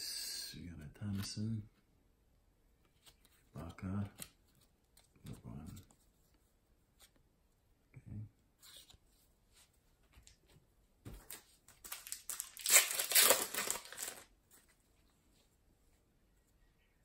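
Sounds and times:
foil wrapper crinkling: 11.8 - 14.3.

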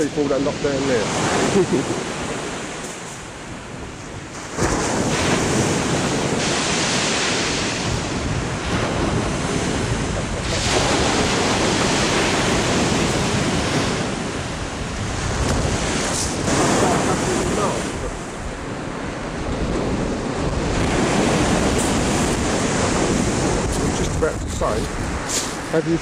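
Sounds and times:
wind rumbling on microphone: 0.0 - 26.0
waves breaking on shingle: 4.3 - 18.4.

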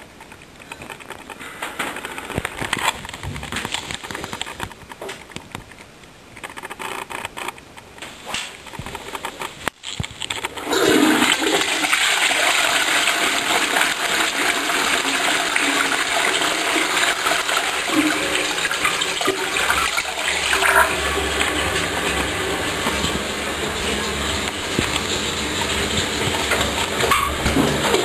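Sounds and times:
toilet flushing: 10.6 - 28.0.

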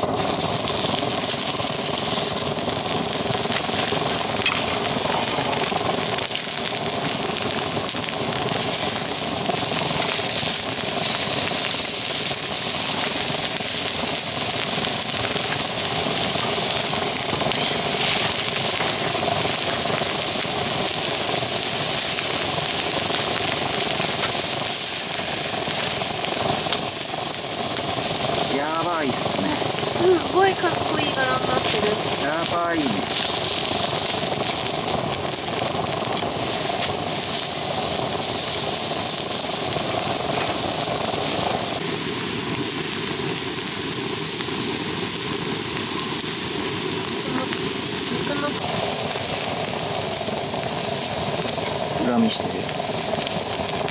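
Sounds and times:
steaks sizzling on griddle: 0.0 - 53.9.

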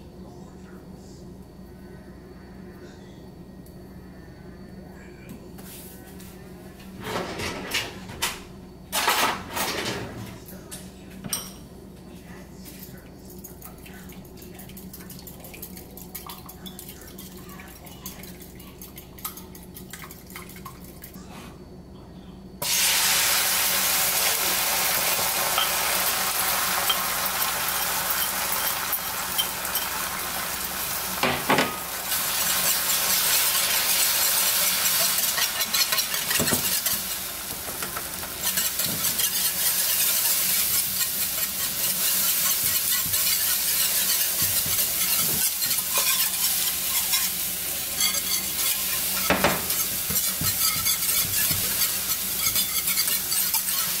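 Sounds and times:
eggs whisked in a bowl: 12.6 - 21.1, 25.1 - 31.2, 32.0 - 54.0
eggs sizzling in a pan: 22.6 - 54.0.

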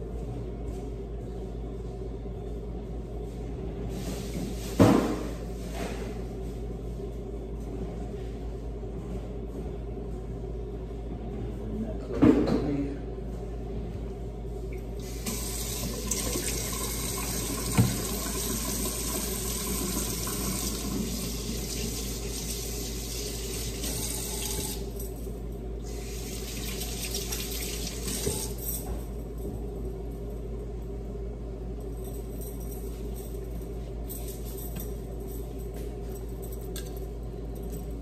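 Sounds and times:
tap running into a sink: 15.3 - 21.8.

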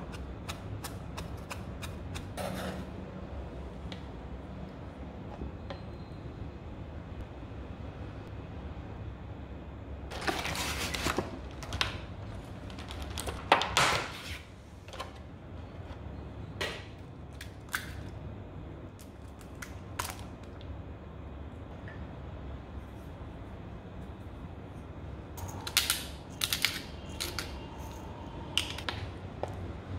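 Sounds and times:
low room hum: 0.0 - 29.9
plastic containers rustling: 10.1 - 13.8.

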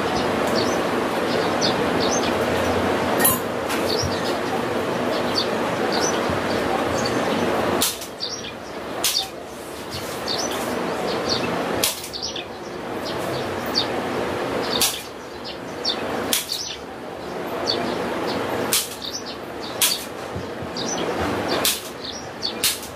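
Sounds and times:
birds chirping: 0.0 - 22.9.

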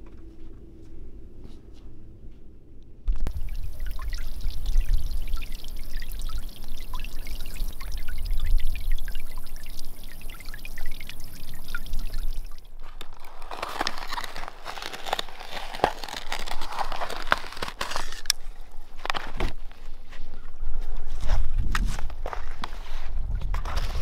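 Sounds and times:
low rumble: 0.0 - 13.6
fountain water splashing on pond: 3.2 - 17.8.

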